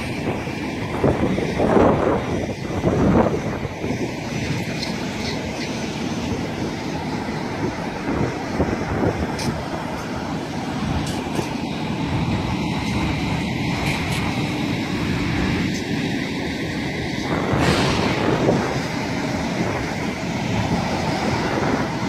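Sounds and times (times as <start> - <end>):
truck driving past: 15.2 - 22.0.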